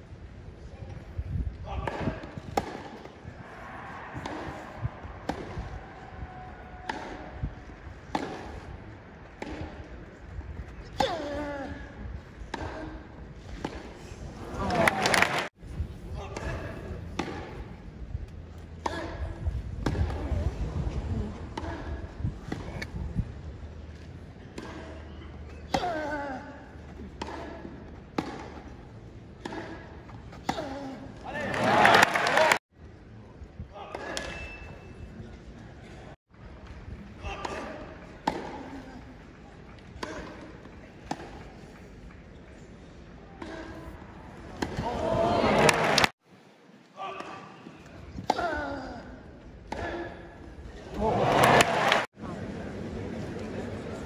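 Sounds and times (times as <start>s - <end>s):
rackets striking tennis ball: 1.8s - 11.5s, 12.4s - 14.0s, 16.3s - 19.2s, 19.8s - 20.3s, 26.8s - 30.9s, 36.9s - 42.2s, 43.4s - 45.0s.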